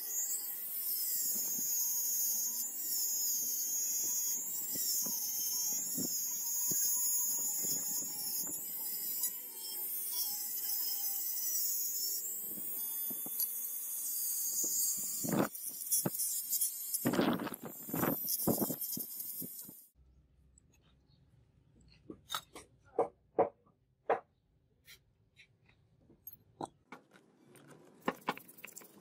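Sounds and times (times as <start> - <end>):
rotary tool whining: 0.0 - 20.0.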